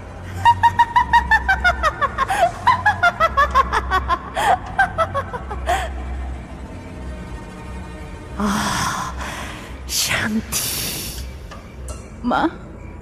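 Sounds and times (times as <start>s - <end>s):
low drone: 0.0s - 13.0s
shrill cackling laugh: 0.4s - 5.8s.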